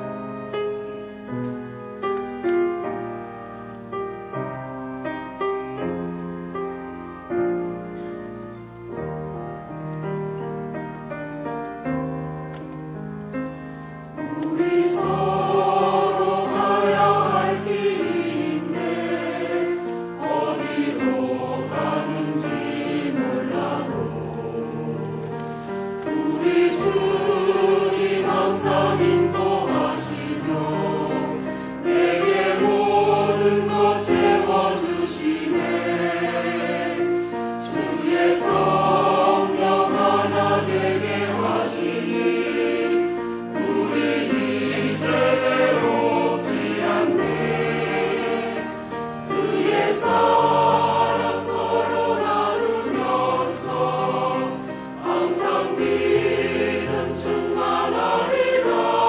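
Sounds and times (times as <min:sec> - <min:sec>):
choir singing a hymn: 0:13.4 - 0:59.0.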